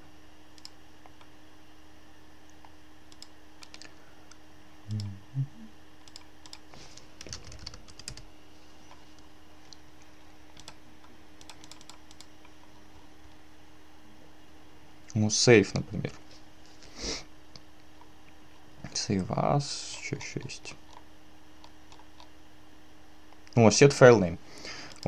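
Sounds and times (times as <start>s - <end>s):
faint hum: 0.0s - 25.0s
keyboard typing: 3.1s - 3.9s, 6.0s - 8.3s, 10.5s - 10.8s, 11.4s - 12.6s.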